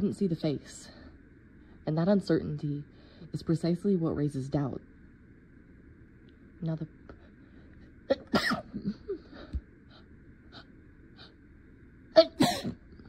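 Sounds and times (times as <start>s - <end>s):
person sneezing: 12.2s - 12.8s.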